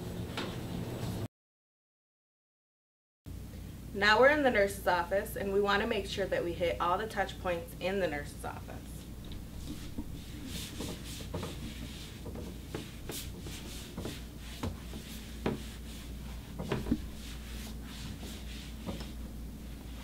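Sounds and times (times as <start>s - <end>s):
cloth rubbing plastic chair: 9.5s - 20.0s
clicks and knocks on chair: 16.6s - 17.1s.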